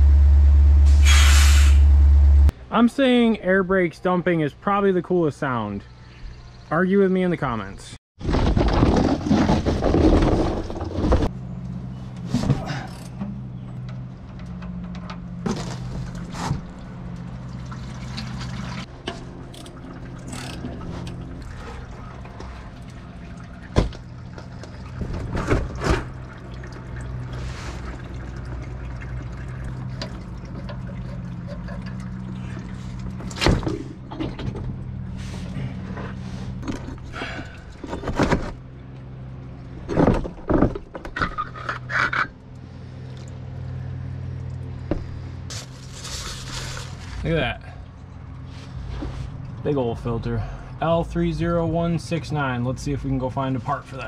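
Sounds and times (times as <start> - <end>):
oil pouring into a bucket: 17.3 - 18.9, 19.7 - 33.3.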